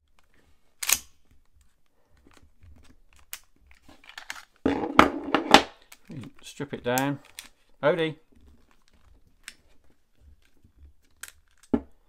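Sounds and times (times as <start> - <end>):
pistol handling clicks: 0.8 - 1.2.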